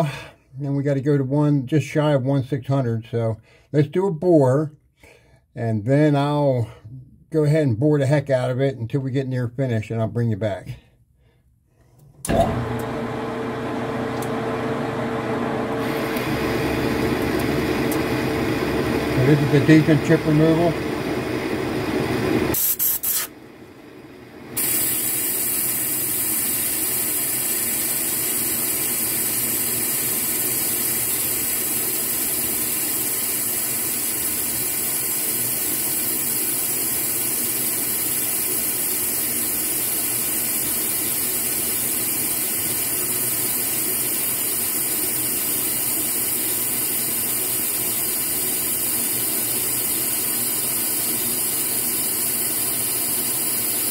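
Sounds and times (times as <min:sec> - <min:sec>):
metal lathe boring hiss: 0:15.8 - 0:23.4, 0:24.6 - 0:53.9.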